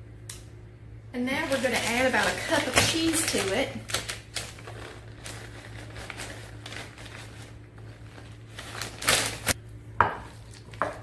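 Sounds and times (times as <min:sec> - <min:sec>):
shredded cheese rustling: 0:01.3 - 0:09.6.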